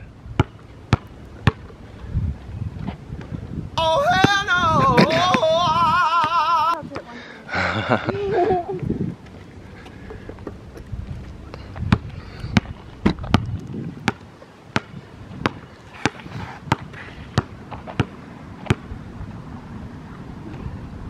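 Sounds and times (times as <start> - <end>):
basketball bouncing on hard court: 0.4 - 1.7, 14.8 - 18.8.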